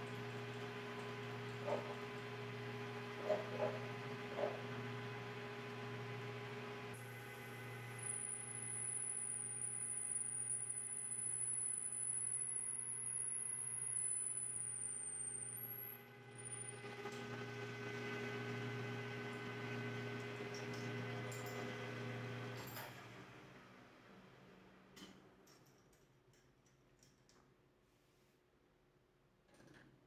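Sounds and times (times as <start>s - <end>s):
high-pitched cutting whine: 7.0s - 16.8s.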